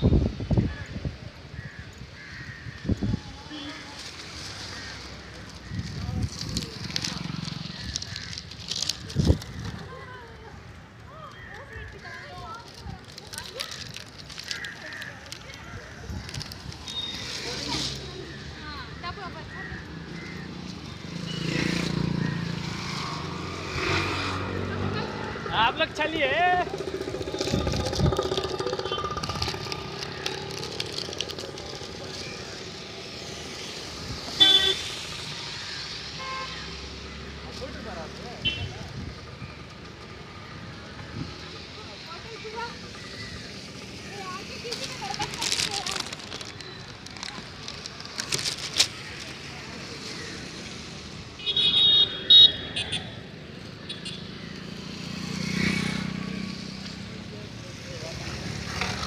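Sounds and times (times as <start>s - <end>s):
traffic on wet road: 0.0s - 59.0s
rain hiss: 32.8s - 37.0s
vehicle horn toot: 34.4s - 35.0s, 38.4s - 38.8s, 51.4s - 53.1s.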